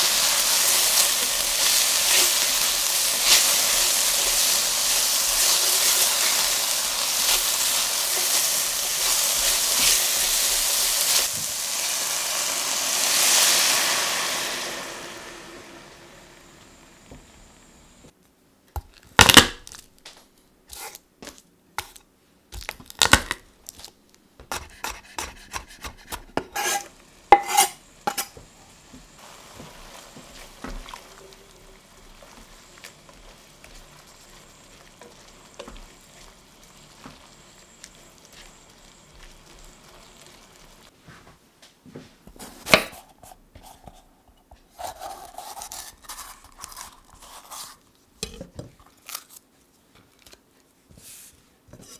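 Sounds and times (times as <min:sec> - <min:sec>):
pan sizzling: 0:00.0 - 0:18.1, 0:24.5 - 0:41.0.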